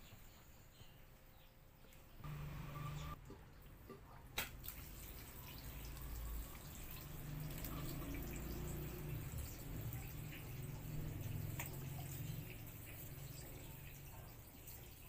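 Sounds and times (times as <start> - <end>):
low steady hum: 2.2 - 3.2
water dripping and trickling: 3.2 - 15.0.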